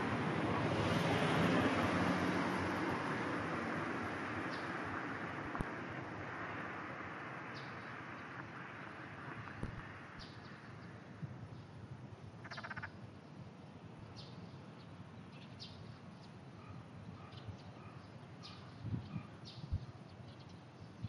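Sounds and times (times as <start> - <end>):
frog rattling croak: 12.4 - 13.0.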